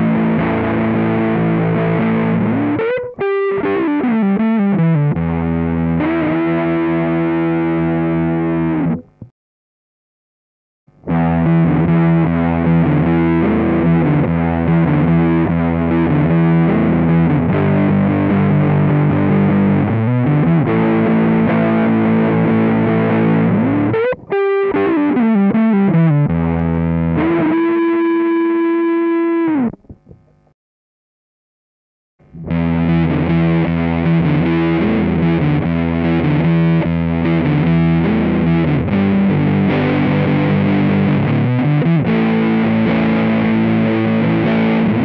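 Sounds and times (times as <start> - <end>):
distorted electric guitar riff: 0.0 - 9.3, 10.9 - 30.5, 32.2 - 45.0.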